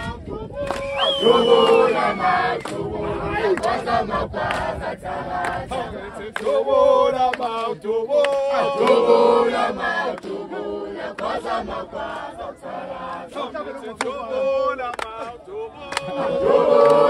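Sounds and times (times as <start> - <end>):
group singing and chanting: 0.0 - 17.0
sharp handclaps: 0.6 - 2.0, 2.6 - 2.8, 6.4 - 6.6, 7.3 - 9.0, 14.8 - 16.2.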